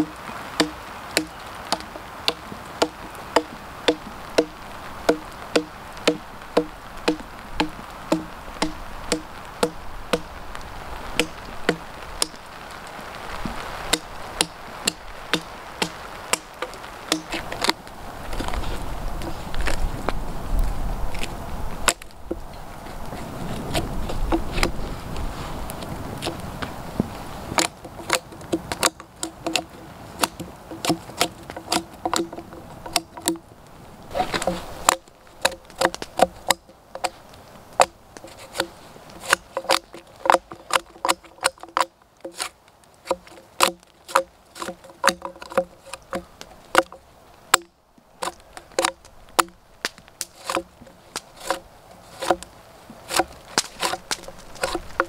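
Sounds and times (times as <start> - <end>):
knife scraping bark off a log: 0.0 - 10.5, 11.2 - 12.5, 13.3 - 19.9, 21.2 - 26.4, 27.0 - 33.4, 34.1 - 55.0.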